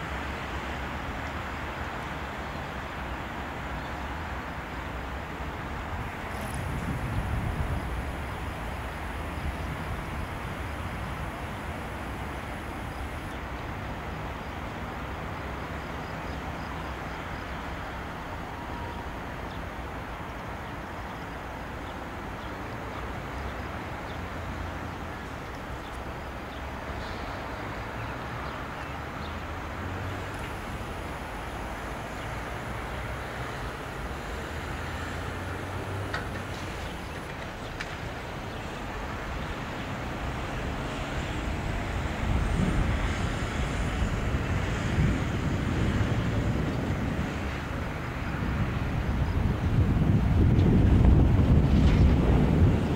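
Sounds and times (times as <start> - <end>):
jet engines rumbling: 5.0 - 16.1, 28.6 - 52.9.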